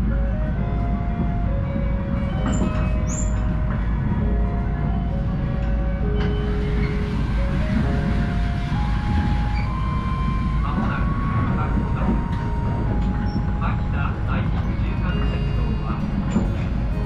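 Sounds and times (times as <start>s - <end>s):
train rumbling: 0.0s - 17.0s.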